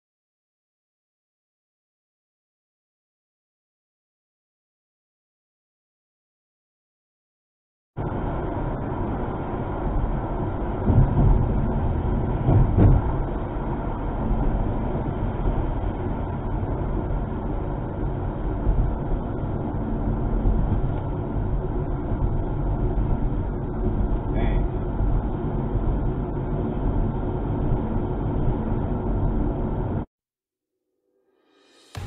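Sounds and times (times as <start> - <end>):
car road and engine noise: 8.0 - 30.1
low rumbles: 8.0 - 30.1.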